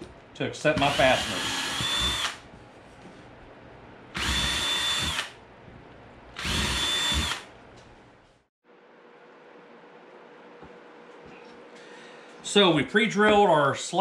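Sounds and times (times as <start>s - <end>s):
cordless drill whining: 0.8s - 2.4s, 4.2s - 5.4s, 6.4s - 7.5s.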